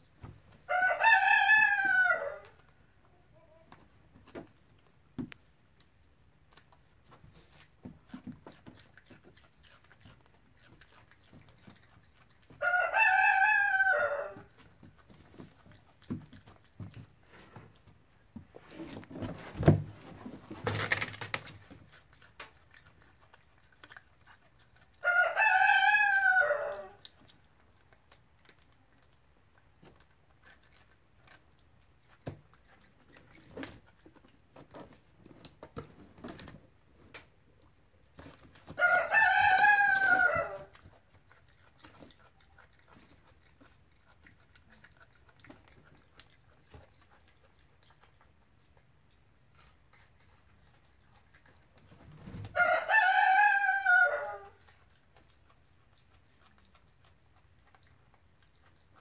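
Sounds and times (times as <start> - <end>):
rooster crowing: 0.7 - 2.6, 12.6 - 14.5, 25.0 - 27.0, 38.8 - 40.7, 52.5 - 54.6.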